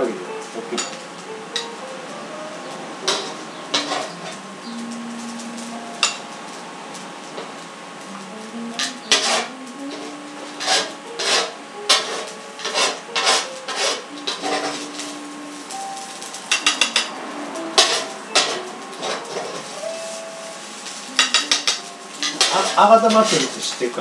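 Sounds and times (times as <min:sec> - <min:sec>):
chopsticks scraping a bowl: 0:10.6 - 0:14.8.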